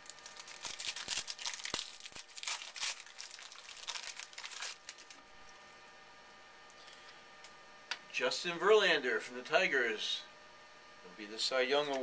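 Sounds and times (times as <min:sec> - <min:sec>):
wrapper crinkling: 0:00.0 - 0:05.2.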